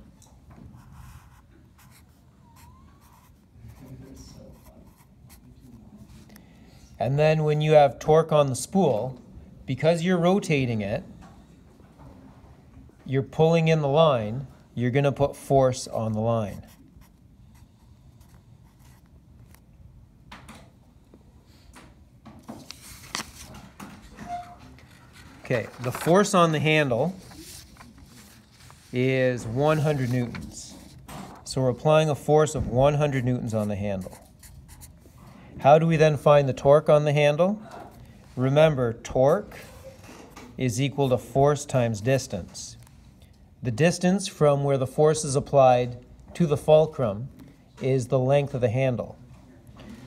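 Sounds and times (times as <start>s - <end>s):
marker scratching on paper: 0.7s - 5.7s, 16.4s - 19.6s, 33.0s - 35.2s
paper rustling: 22.4s - 31.5s.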